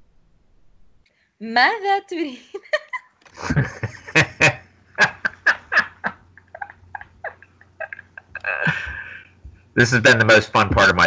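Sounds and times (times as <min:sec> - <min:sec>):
people laughing hard: 0:02.6 - 0:09.2.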